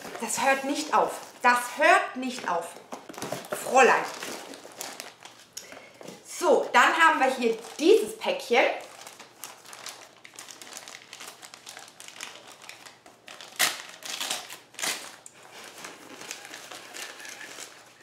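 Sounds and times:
packaging crinkling: 2.8 - 6.0, 7.4 - 18.0.

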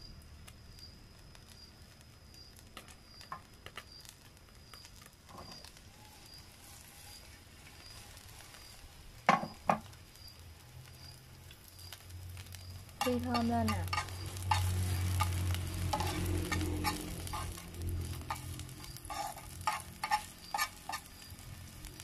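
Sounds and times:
oil crackling in a frying pan: 0.0 - 22.0.

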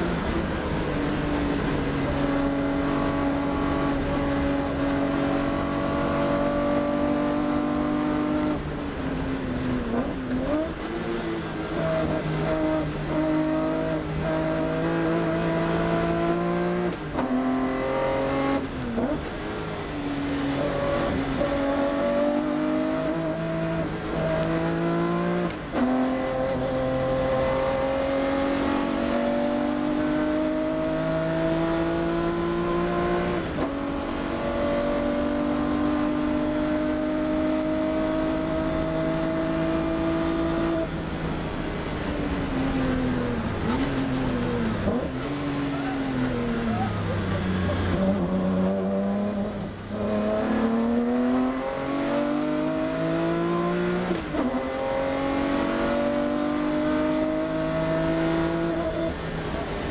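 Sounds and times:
race car engine at full throttle: 0.0 - 59.9.

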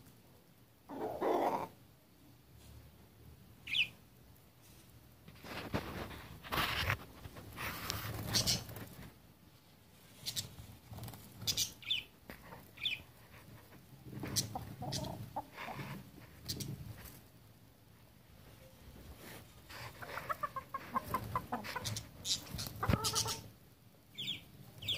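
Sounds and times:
roosters clucking low: 0.9 - 1.8, 13.4 - 17.2, 19.7 - 23.5.

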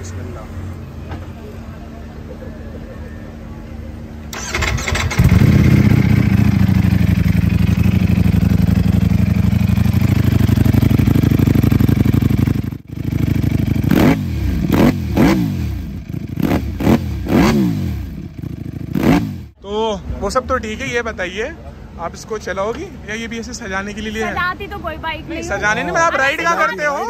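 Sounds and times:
motorcycle starter cranking: 4.3 - 7.8
engine revving: 4.3 - 8.8, 10.2 - 19.6
motorcycle engine idling: 4.3 - 19.6.

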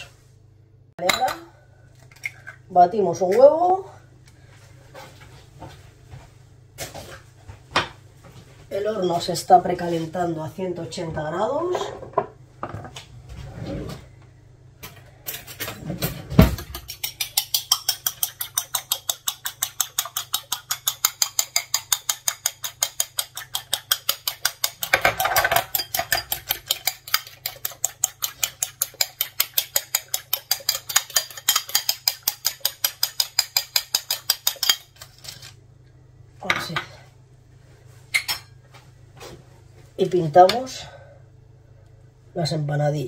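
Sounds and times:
utensil clicking against bowl: 16.7 - 25.0, 25.7 - 34.8.

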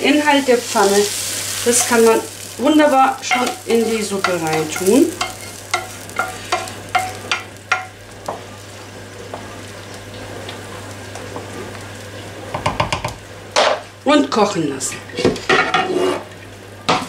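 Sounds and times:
soup boiling and bubbling: 0.0 - 14.0
spatula knocking on frying pan: 3.3 - 8.0, 12.5 - 13.2.

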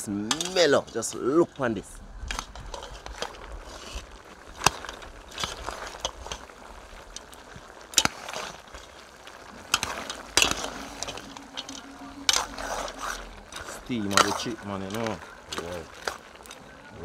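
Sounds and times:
metal spoon scraping a pot: 7.2 - 16.7.

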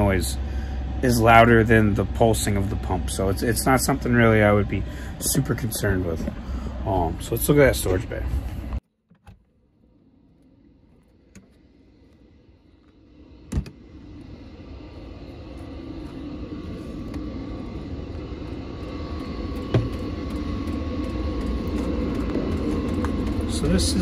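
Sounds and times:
air heater fan and burner rush: 0.0 - 8.8, 10.5 - 24.0.

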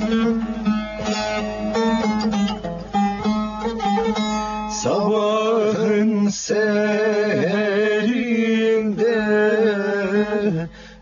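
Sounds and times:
plucked long-necked lute melody: 0.0 - 6.3.

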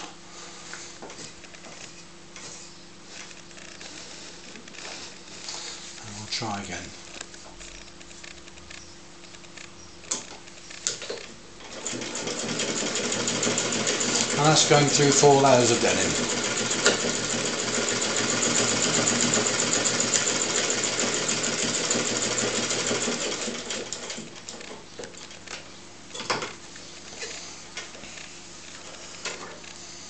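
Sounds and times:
hand-cranked sewing machine: 10.9 - 24.8.

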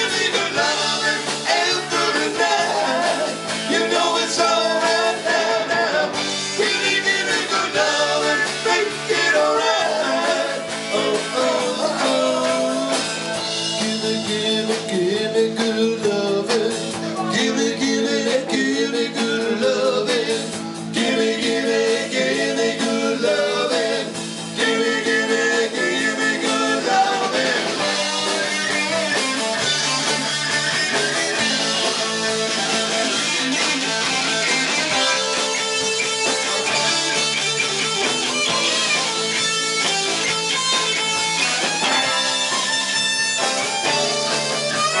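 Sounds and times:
men singing: 0.0 - 28.7
live rock band playing: 0.0 - 45.0.

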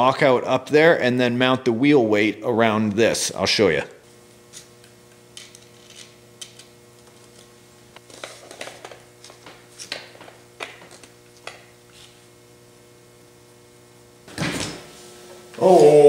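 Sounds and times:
faint electrical hum: 0.0 - 16.0
small metal parts clicking and scraping: 5.4 - 6.6.

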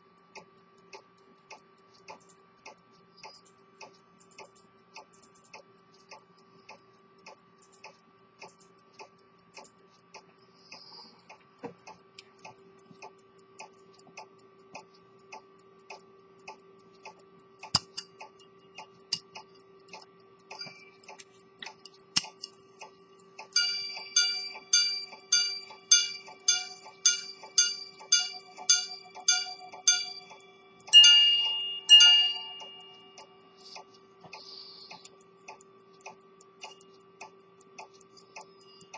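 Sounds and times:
pocket watch ticking: 0.0 - 38.9
sharp handling clicks: 16.8 - 30.4
repeater chimes ringing: 23.5 - 33.7.

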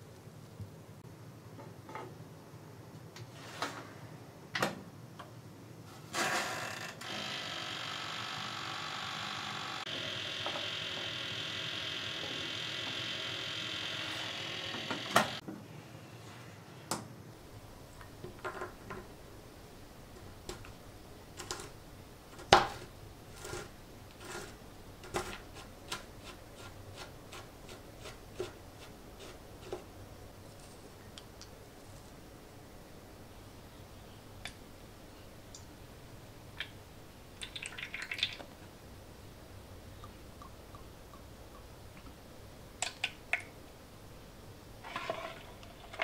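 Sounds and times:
toaster oven humming: 7.0 - 15.4.

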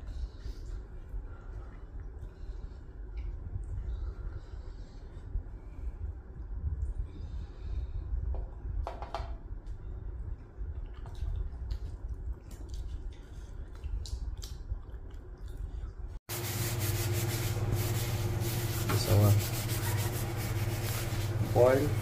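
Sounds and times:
chewing and mouth clicks: 0.1 - 3.9, 10.2 - 16.2
steady hum with hiss: 16.3 - 22.0.

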